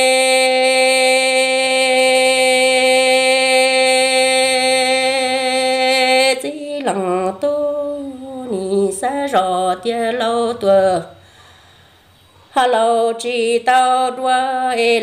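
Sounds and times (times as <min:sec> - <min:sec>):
person singing long note: 0:00.0 - 0:06.7.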